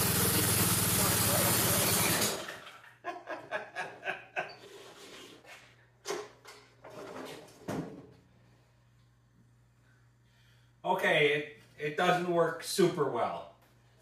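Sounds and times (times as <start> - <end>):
snowblower engine cutting out: 0.0 - 2.6
man chuckling: 2.8 - 4.9.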